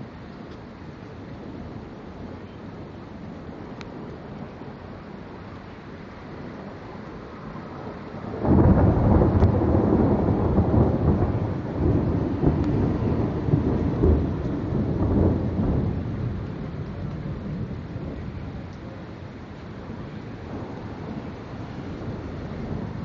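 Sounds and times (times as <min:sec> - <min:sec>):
rain hissing: 0:00.0 - 0:23.0
thunder clap rumbling: 0:06.2 - 0:23.0.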